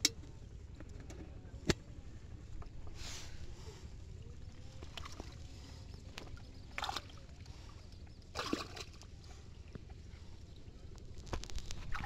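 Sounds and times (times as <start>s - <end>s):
water sloshing: 2.6s - 12.0s
short water splashes: 4.6s - 9.4s.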